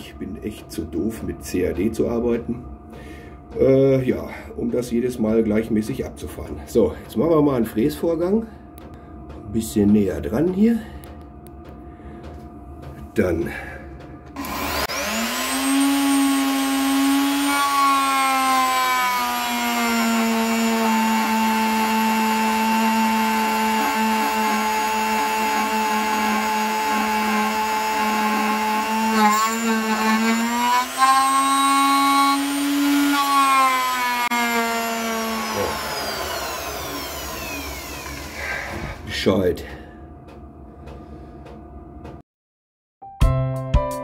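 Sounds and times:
milling spindle whining: 14.3 - 39.1.

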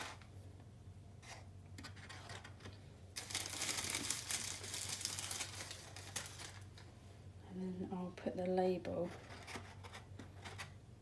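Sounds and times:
plastic bag crinkling: 3.2 - 6.8.

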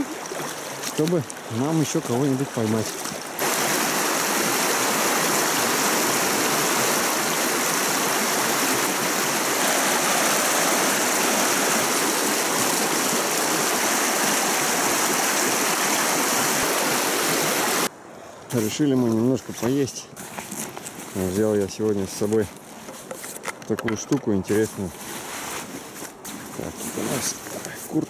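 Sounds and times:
water rushing over stones: 0.0 - 17.9.

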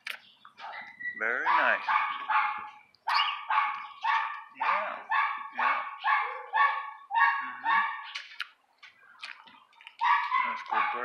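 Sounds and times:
animal calling: 0.6 - 8.3, 10.0 - 11.0.

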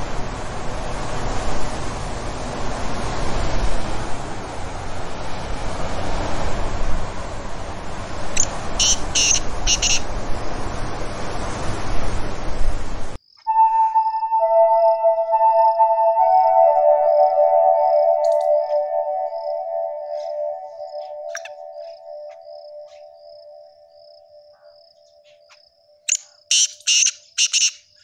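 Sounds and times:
strong storm wind roaring: 0.0 - 13.2
short high-pitched chirps: 18.2 - 23.1.

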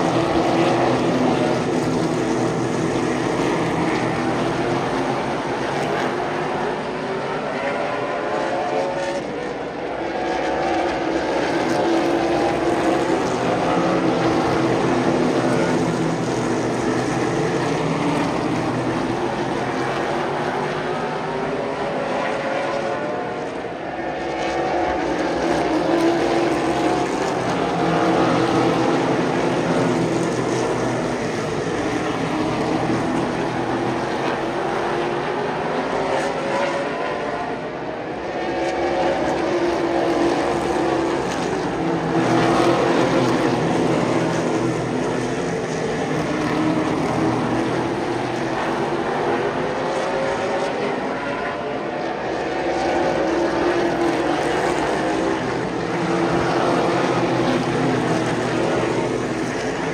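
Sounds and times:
stock cars racing: 0.0 - 59.9.

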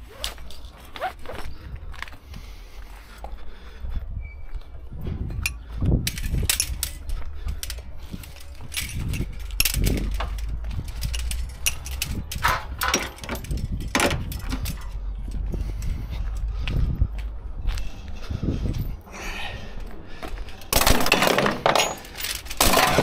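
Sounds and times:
strap webbing rustling: 0.0 - 2.2
metal strap hooks clanking: 5.4 - 15.9, 20.6 - 23.0.

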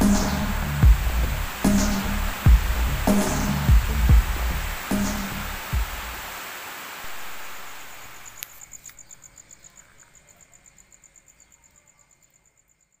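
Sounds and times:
rain hiss: 0.0 - 9.4
insect chirping: 0.0 - 13.0.

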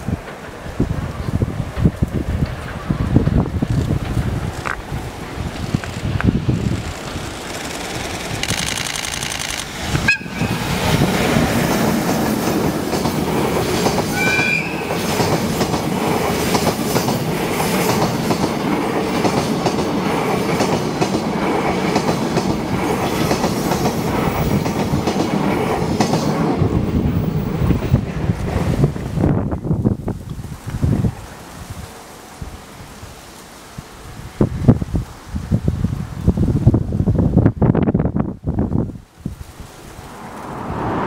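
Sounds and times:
wheels clattering over rail joints: 0.0 - 28.8
freight train passing: 0.0 - 33.0, 35.5 - 41.0.

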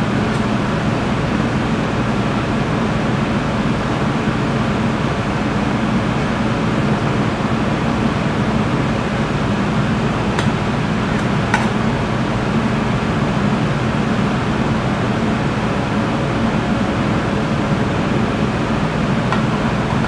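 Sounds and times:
ventilation fan running: 0.0 - 20.0.

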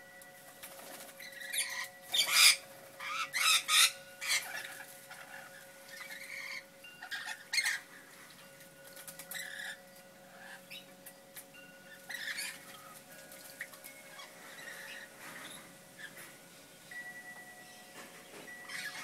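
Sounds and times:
lorikeets screeching: 1.2 - 7.9, 9.3 - 10.9, 11.9 - 12.7, 14.1 - 16.2, 18.6 - 19.0.

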